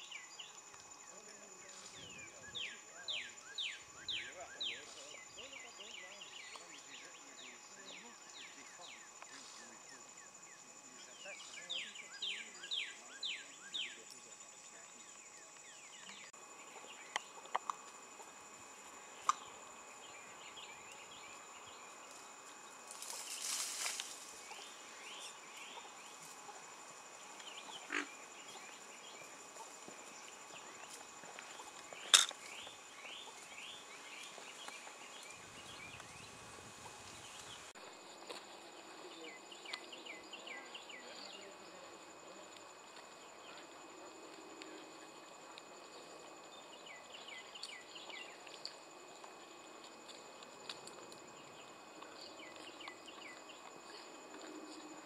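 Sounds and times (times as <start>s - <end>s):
high-pitched insect drone: 0.0s - 55.0s.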